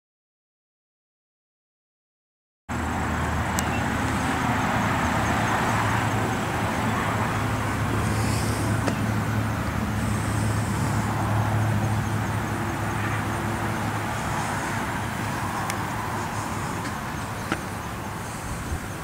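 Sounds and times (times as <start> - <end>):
even hiss: 5.5 - 19.0.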